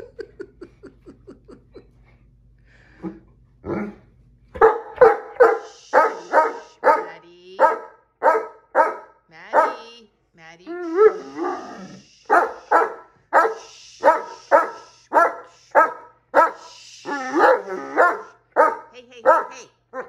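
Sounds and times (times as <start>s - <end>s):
dog barking loudly: 4.6s - 9.9s, 10.9s - 16.7s, 17.4s - 20.0s.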